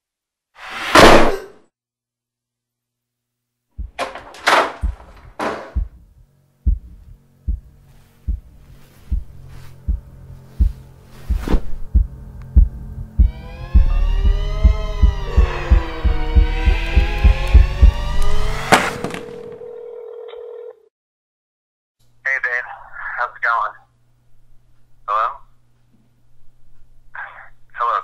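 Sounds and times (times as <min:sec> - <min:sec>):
low heartbeat thump: 0:03.7 - 0:18.6
low hum: 0:03.8 - 0:18.7
sharp swishes: 0:11.2 - 0:11.8
wavering rising and falling tone: 0:13.0 - 0:18.7.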